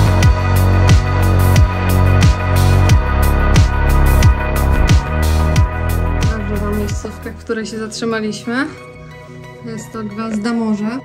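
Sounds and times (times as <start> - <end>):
deep kick drums: 0.0 - 7.1
held bass line: 0.0 - 7.4
electronic music with beat: 0.0 - 7.6.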